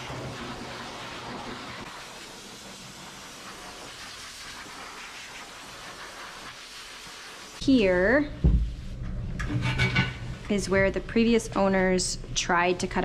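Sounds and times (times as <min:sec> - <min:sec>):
dog dryer blowing air: 0:00.0 - 0:07.6.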